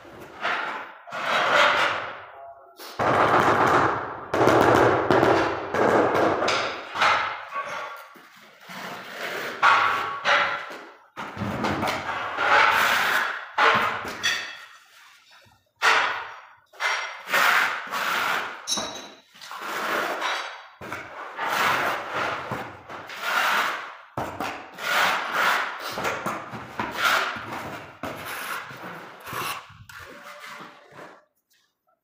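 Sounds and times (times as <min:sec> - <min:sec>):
hand tool scraping tile joints: 0:00.2 - 0:02.1, 0:06.8 - 0:10.9, 0:11.9 - 0:31.3.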